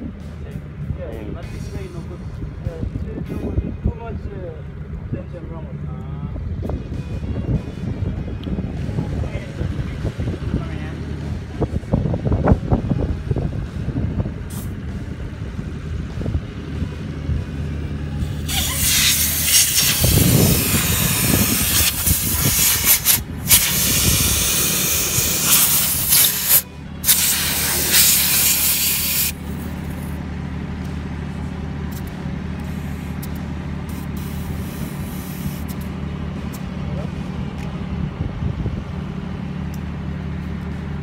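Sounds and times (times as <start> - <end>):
steady low hum: 0.0 - 41.0
air hissing from tyre valve: 14.5 - 14.8, 18.2 - 30.1, 32.6 - 35.9.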